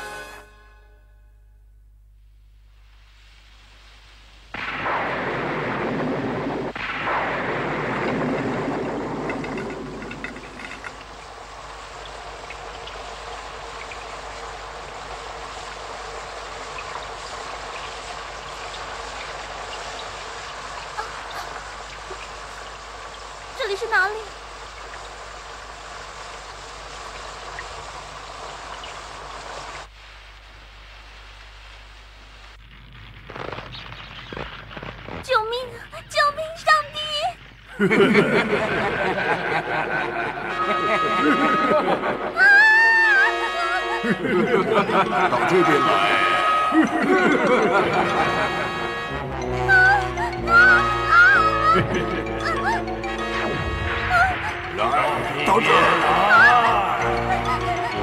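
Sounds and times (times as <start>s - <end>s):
heavy rain: 2.4s - 58.0s
thunder crash: 4.5s - 25.3s, 37.8s - 49.8s, 53.4s - 56.4s
thunder rumbling: 4.5s - 29.9s, 37.5s - 58.0s.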